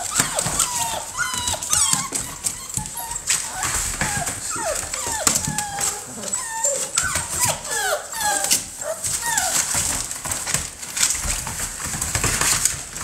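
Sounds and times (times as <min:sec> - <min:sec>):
puppies whimpering: 0:00.0 - 0:10.2
paws scuffling in wood shavings: 0:00.0 - 0:13.0.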